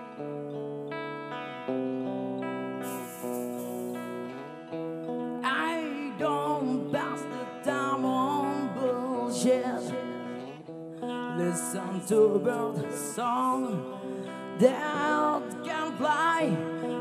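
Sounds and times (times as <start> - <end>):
electric guitar: 0.0 - 17.0
lead vocal singing: 5.4 - 10.5, 11.2 - 17.0.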